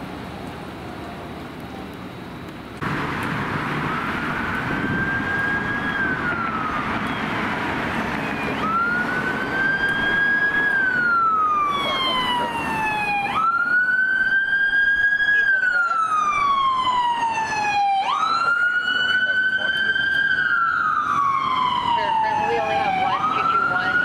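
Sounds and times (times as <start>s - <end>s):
traffic noise: 0.0s - 24.0s
electronic siren wailing: 3.6s - 24.0s.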